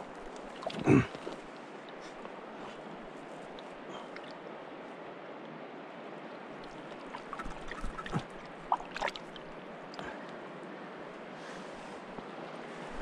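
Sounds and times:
river water running over gravel: 0.0s - 10.1s
splashing and knocking: 7.1s - 9.4s.

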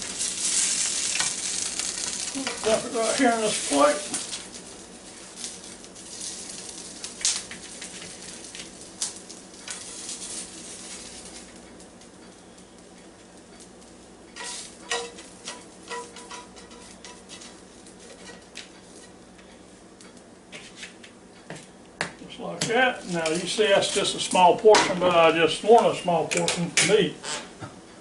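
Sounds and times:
food sizzling: 0.0s - 19.8s
spatula scraping a pan: 14.3s - 19.2s.

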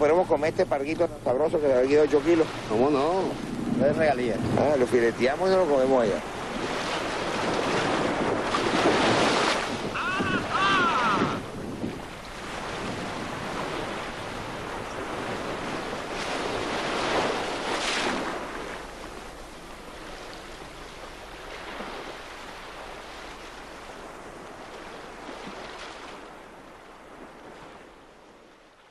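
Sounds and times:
waves and wind at shore: 0.0s - 28.9s.

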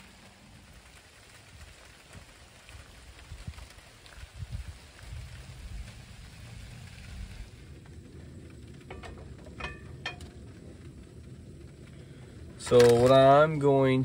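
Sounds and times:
steady rain hiss: 0.0s - 14.0s
low rumble: 3.3s - 14.0s
metal griddle clinking: 8.8s - 10.5s.

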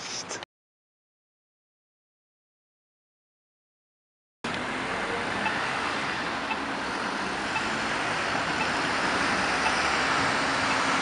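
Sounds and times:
city street traffic: 0.0s - 0.4s, 4.4s - 11.0s
car driving slowly past: 4.5s - 11.0s.

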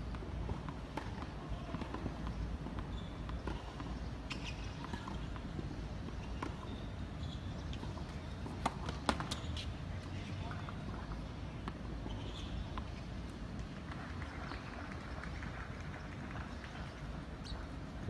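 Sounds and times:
tennis ball bouncing on hard court: 0.1s - 9.7s.

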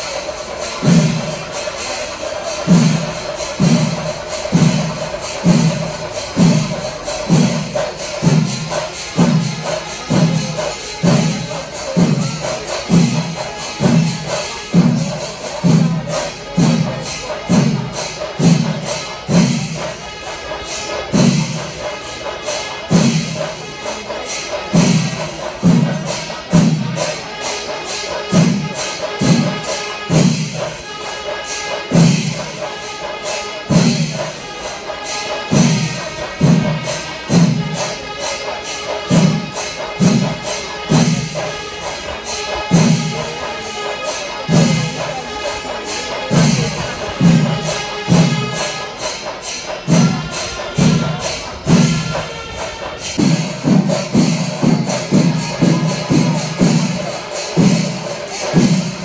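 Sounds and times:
low drum strokes: 0.0s - 59.0s
temple percussion ensemble: 0.0s - 59.0s.

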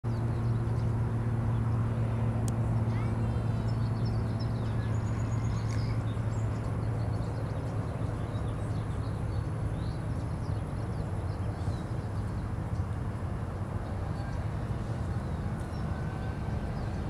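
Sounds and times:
distant traffic rumble: 0.1s - 17.0s
small birds chirping: 2.8s - 13.0s.

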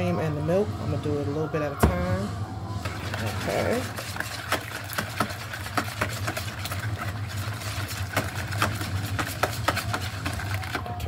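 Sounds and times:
steady low hum: 0.0s - 11.0s
whisk tapping against bowl: 3.1s - 10.8s.

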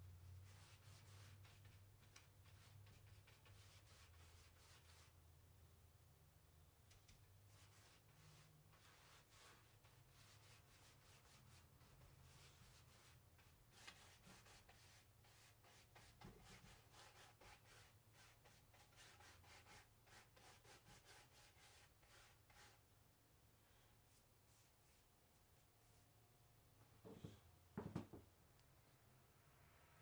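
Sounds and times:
paintbrush scrubbing fabric: 0.3s - 5.1s, 7.5s - 22.8s.

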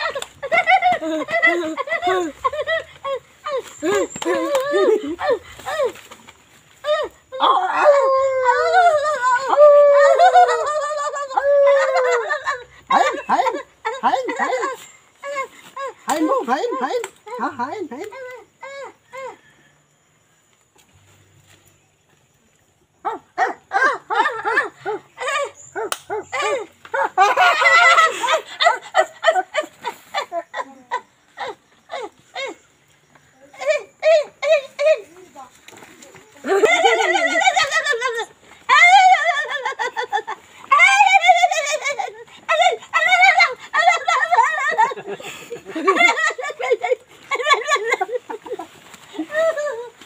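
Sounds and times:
woman making playful vocal sounds: 0.0s - 6.0s
woman laughing and giggling: 0.0s - 19.6s, 23.1s - 35.4s, 36.2s - 50.0s.

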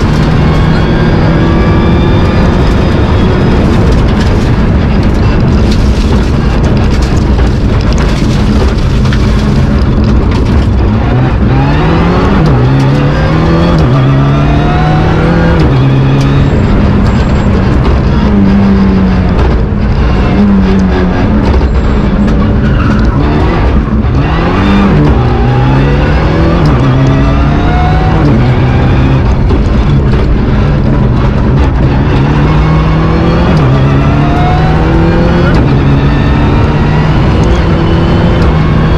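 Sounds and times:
car engine at high revs: 0.0s - 38.9s
tyre and road noise: 0.0s - 38.9s.

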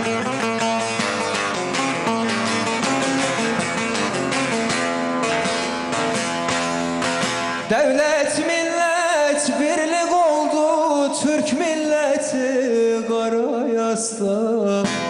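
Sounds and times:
saz strummed and plucked: 0.0s - 15.0s
man singing: 7.7s - 15.0s.

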